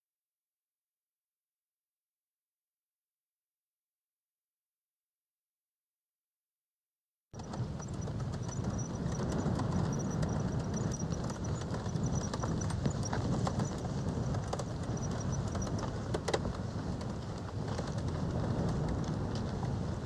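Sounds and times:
road rumble: 7.4s - 20.0s
wind noise: 7.4s - 20.0s.

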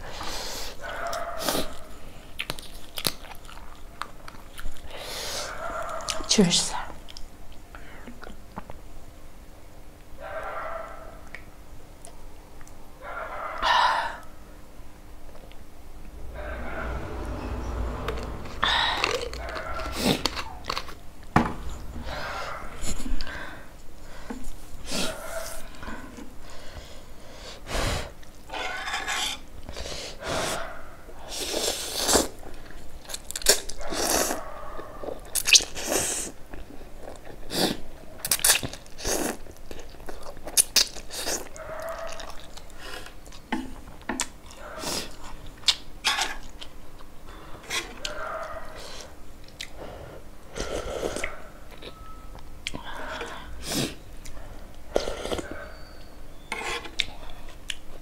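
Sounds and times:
slurping and chewing noodles: 52.6s - 57.9s.

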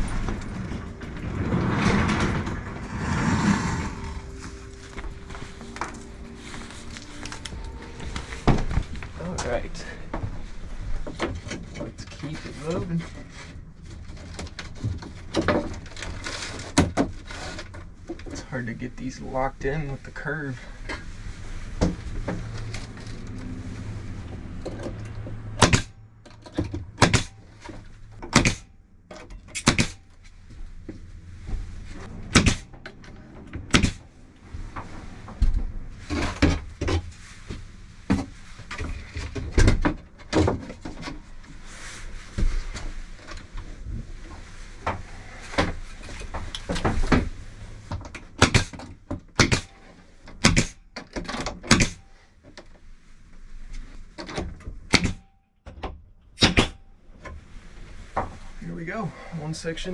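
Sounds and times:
rustling and handling: 4.3s - 18.1s.

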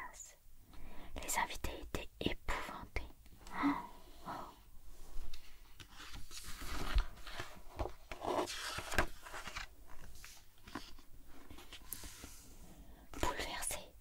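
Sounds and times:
book page turning: 5.8s - 12.4s.

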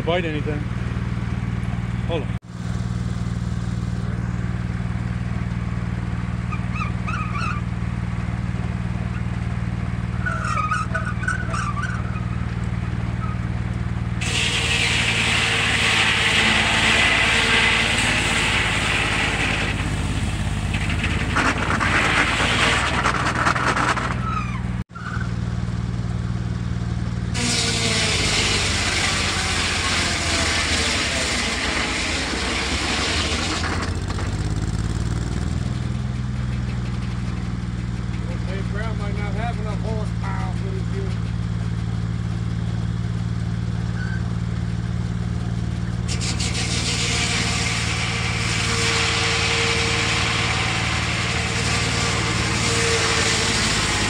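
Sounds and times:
tractor engine droning: 0.0s - 54.0s
saw blade cutting log: 14.2s - 25.2s, 27.4s - 37.2s, 46.0s - 54.0s.

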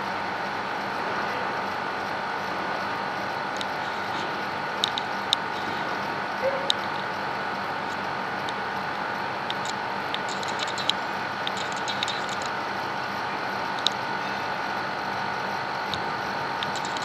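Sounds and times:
urban background hum: 0.0s - 17.0s
sharp high clicks: 9.5s - 12.6s, 16.6s - 17.0s.

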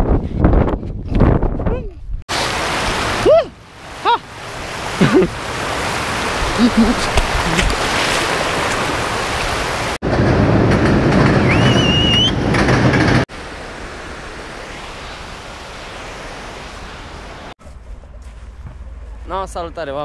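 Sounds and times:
river water rushing: 2.3s - 10.0s, 13.3s - 17.6s
short rising whistle: 11.4s - 12.5s.

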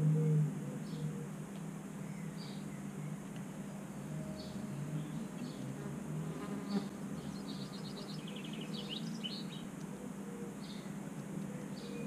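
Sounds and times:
insect buzzing: 3.6s - 8.9s
songbird trilling: 6.7s - 9.7s.

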